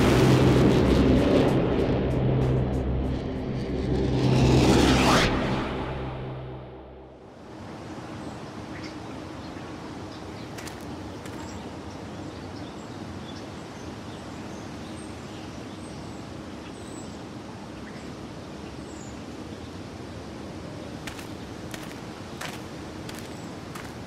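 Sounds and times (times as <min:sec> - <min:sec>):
distant traffic hum: 0:06.8 - 0:24.0
small birds chirping: 0:07.7 - 0:19.9, 0:20.6 - 0:24.0.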